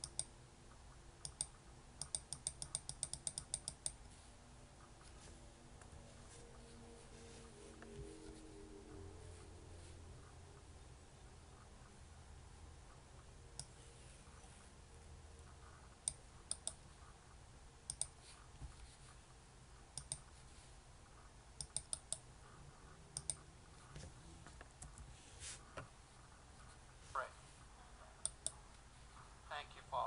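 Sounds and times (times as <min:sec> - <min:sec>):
keyboard keys clicking: 0:00.0 - 0:00.3, 0:01.2 - 0:04.0, 0:16.0 - 0:16.8, 0:21.6 - 0:22.2, 0:23.2 - 0:23.4
computer mouse clicks: 0:00.0 - 0:00.4, 0:01.2 - 0:04.1, 0:13.6 - 0:14.4, 0:15.4 - 0:16.9, 0:17.9 - 0:18.2, 0:19.9 - 0:20.3, 0:21.6 - 0:22.3, 0:23.1 - 0:23.5, 0:28.2 - 0:28.6
faint room hum: 0:00.0 - 0:30.0.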